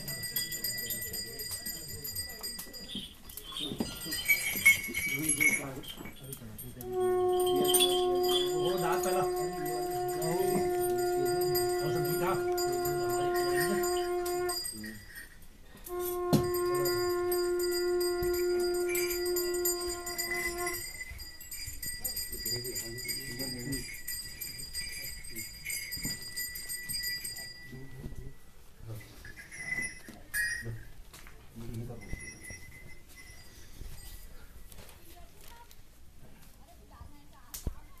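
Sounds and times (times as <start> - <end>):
bells ringing: 0.0 - 31.0, 31.6 - 34.6
conch shell blasts: 6.8 - 15.2, 15.9 - 20.9.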